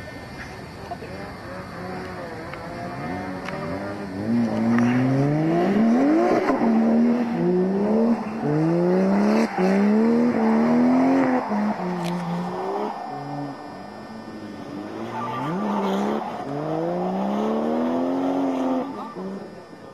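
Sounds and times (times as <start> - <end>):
car engine revving hard: 2.8 - 19.9
tyre squeal: 8.1 - 16.5.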